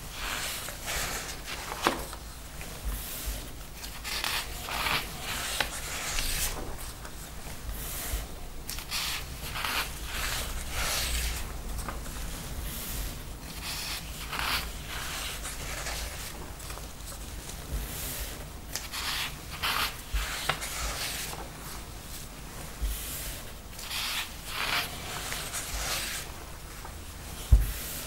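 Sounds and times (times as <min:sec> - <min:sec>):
paper sheets sliding and rustling: 0:00.0 - 0:28.0.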